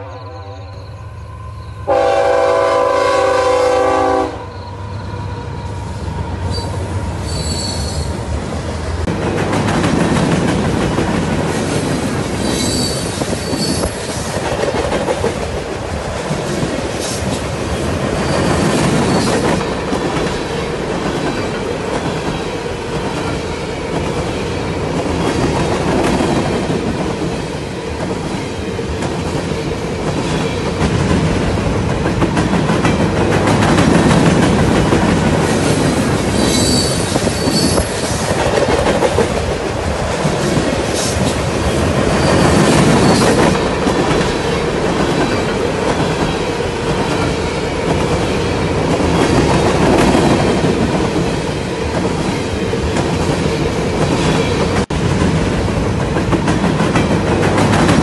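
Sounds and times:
train wheels rumbling on rails: 1.2 - 58.0
train horn blast: 1.8 - 4.6
high wheel squeals: 6.5 - 8.2, 12.4 - 14.0, 36.3 - 38.0.

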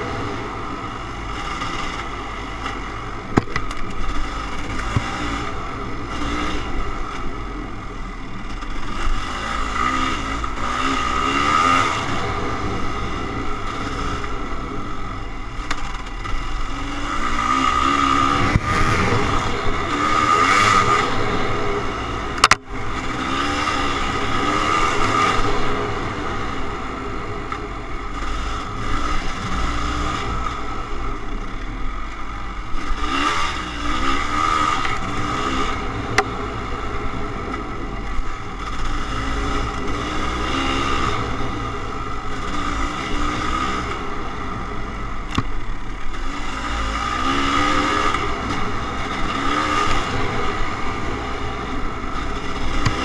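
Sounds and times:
dirt bike engine revving: 0.0 - 31.6, 32.5 - 53.0
sharp click: 22.4 - 22.6.

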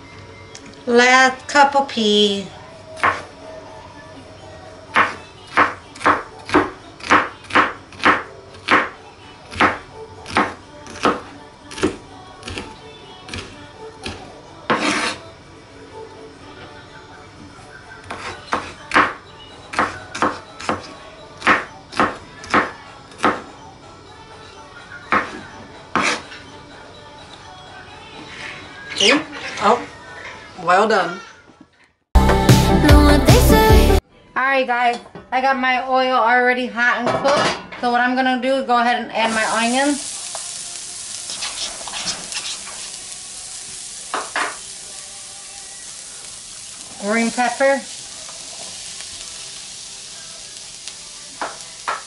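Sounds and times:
spatula scraping a pan: 14.7 - 15.3, 25.9 - 26.4, 28.2 - 30.5, 41.2 - 43.0
onions sizzling in hot oil: 39.2 - 52.0.

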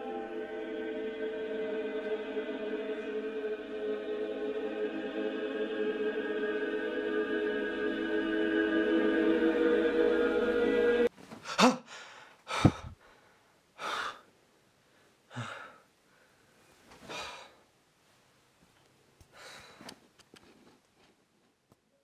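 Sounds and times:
man breathing heavily: 11.4 - 14.3, 15.3 - 17.6, 19.3 - 20.0
man gasping: 11.4 - 14.3, 15.3 - 15.9, 17.0 - 17.6.

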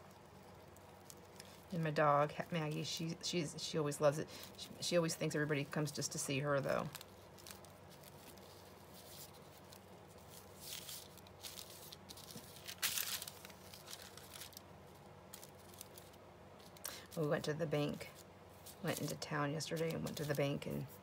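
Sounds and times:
paper rustling: 4.4 - 21.0.

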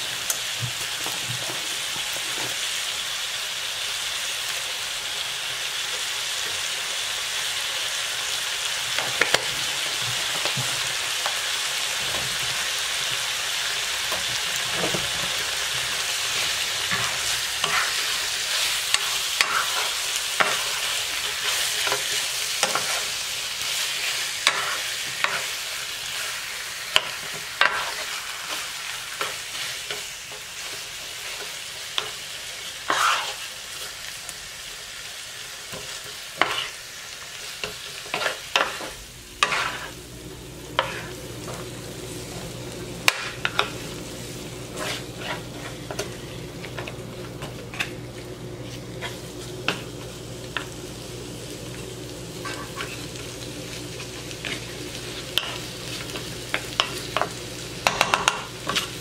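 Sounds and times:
meat sizzling in a frying pan: 0.0 - 59.0
wooden spatula scraping a pan: 16.3 - 23.2, 27.2 - 28.6, 32.8 - 33.9, 36.4 - 36.8, 37.7 - 40.0, 40.7 - 41.6, 44.6 - 46.8, 52.4 - 53.0.

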